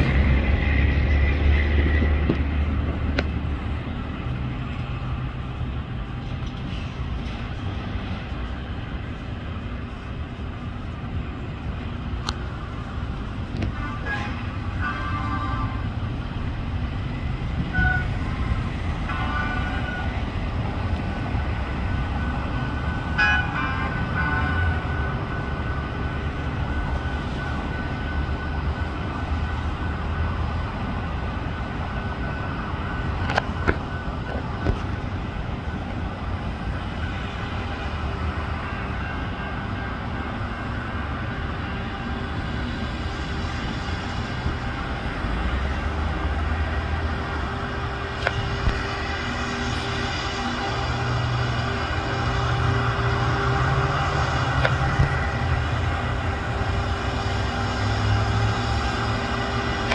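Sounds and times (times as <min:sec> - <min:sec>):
engine and traffic rumble: 0:00.0 - 0:59.9
vehicle horn blasts: 0:13.6 - 0:15.9, 0:17.7 - 0:18.2, 0:23.2 - 0:24.8.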